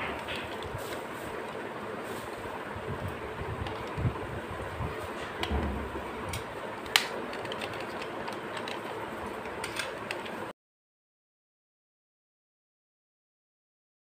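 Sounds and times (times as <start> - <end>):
plastic toy parts clicking: 6.3 - 10.3.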